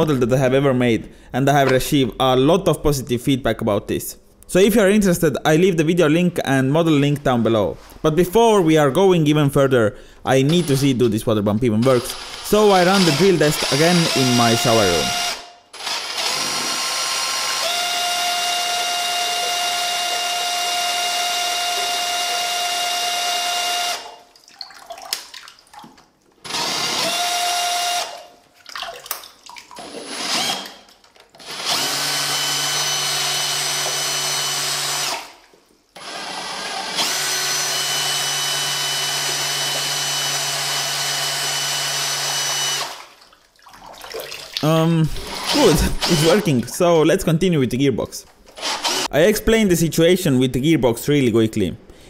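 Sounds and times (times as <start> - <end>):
power drill whine: 11.8 - 24.2, 26.4 - 28.3, 29.8 - 30.8, 31.4 - 35.4, 36.0 - 43.0, 45.2 - 46.5, 48.6 - 49.1.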